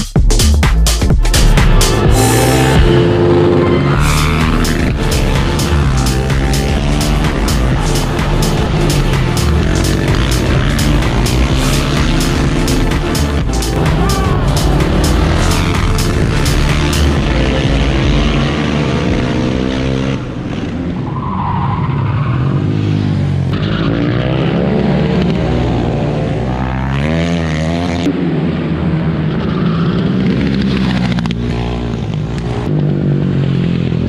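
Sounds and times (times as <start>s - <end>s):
motorcycle engines revving: 1.0s - 34.0s.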